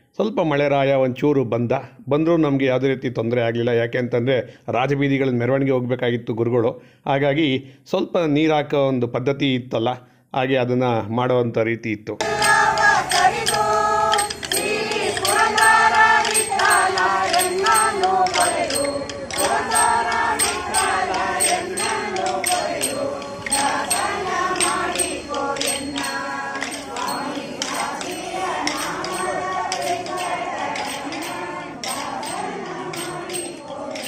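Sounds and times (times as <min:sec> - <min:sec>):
sticks clacking together: 0:12.2 - 0:34.0
women singing in unison: 0:12.2 - 0:34.0.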